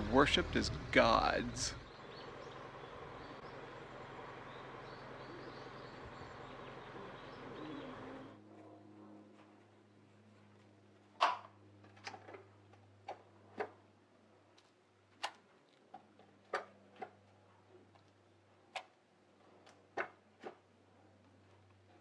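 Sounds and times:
steady low hum: 0.0 - 11.1.

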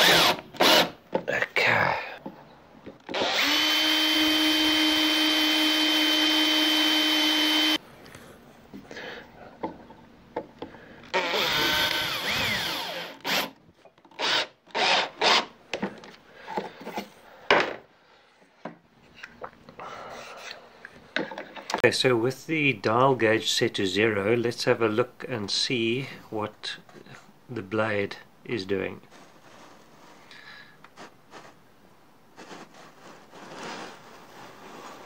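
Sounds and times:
cordless drill driving screws: 0.0 - 1.0, 3.0 - 7.8, 11.1 - 15.5
knocks and clatters of handling: 9.6 - 10.8, 15.7 - 17.9, 21.1 - 21.8.

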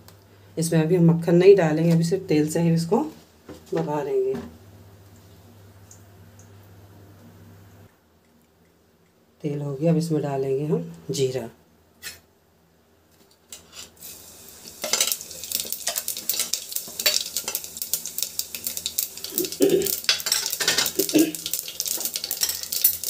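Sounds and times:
seeds sizzling in hot oil: 13.6 - 23.0.

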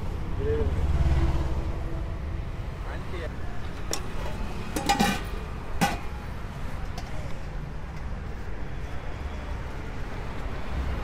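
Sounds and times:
passing traffic rumble: 0.0 - 11.0.

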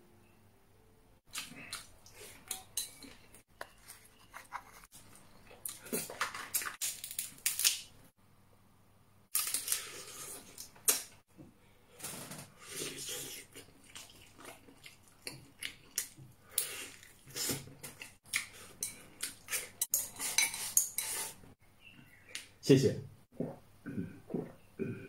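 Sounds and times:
lobster shell cracking: 6.4 - 7.9
chewing and mouth smacking: 13.2 - 19.8.

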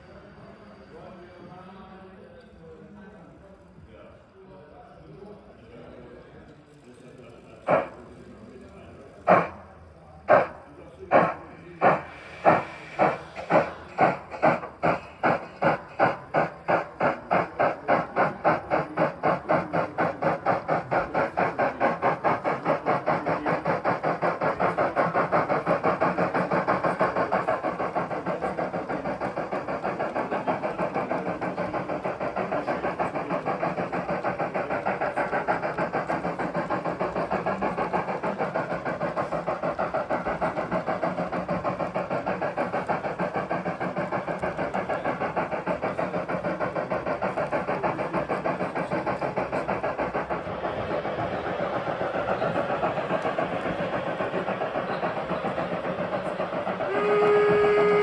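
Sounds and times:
steam locomotive exhaust chuffs: 0.0 - 58.0
steam hiss: 7.0 - 58.0
steam whistle: 56.9 - 58.0.

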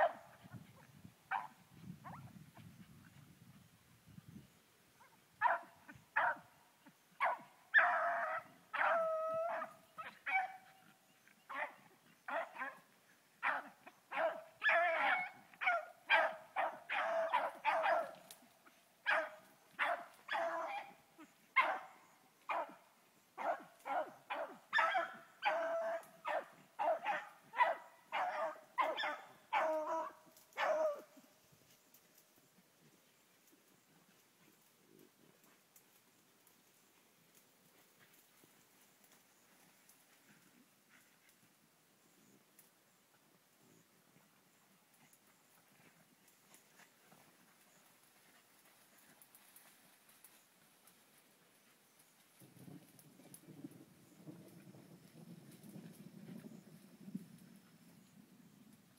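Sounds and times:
hounds barking and baying: 5.0 - 22.8, 23.4 - 31.3.

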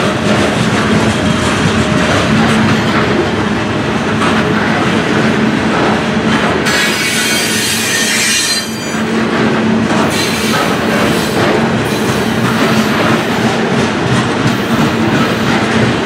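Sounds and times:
train wheels rumbling on rails: 0.0 - 16.0
high-pitched wheel squeal: 6.7 - 9.0.

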